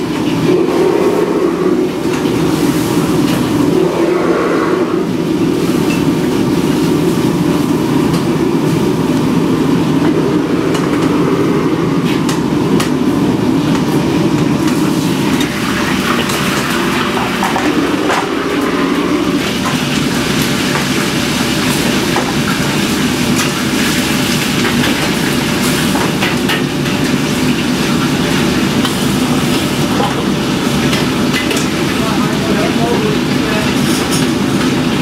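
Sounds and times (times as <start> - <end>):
kitchen burners and ventilation roar: 0.0 - 35.0.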